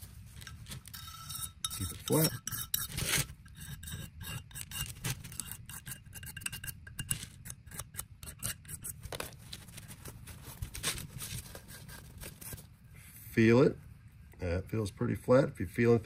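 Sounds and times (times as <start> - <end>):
razor blade scraping metal: 0.4 - 9.2.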